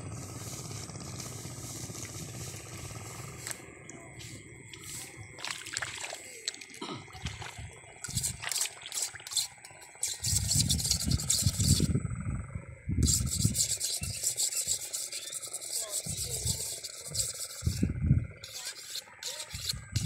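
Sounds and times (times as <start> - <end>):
close rustling and rubbing: 13.0 - 17.8.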